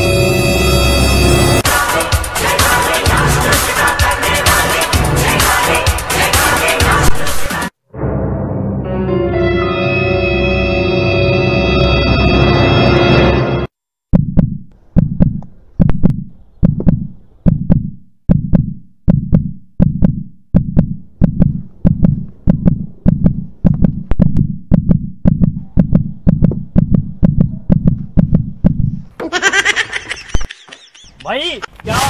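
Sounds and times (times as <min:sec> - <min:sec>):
heartbeat thudding: 0:14.1 - 0:29.2.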